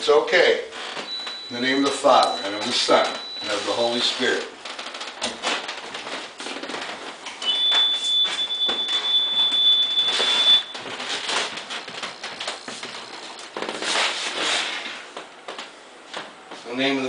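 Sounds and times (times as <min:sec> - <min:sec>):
footsteps and shuffling: 0:00.8 - 0:16.8
high-pitched electronic beep: 0:07.4 - 0:10.8.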